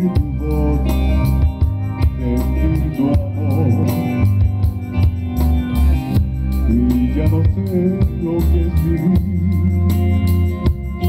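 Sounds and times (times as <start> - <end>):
bass: 0.0 - 11.0
drums keeping a beat: 0.0 - 11.0
electric guitar: 0.0 - 11.0
electronic keyboard: 0.0 - 11.0.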